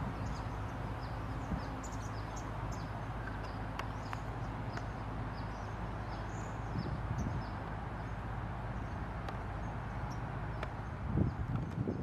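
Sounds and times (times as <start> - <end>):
small birds chirping: 0.0 - 12.0
faint clicks: 3.2 - 5.0.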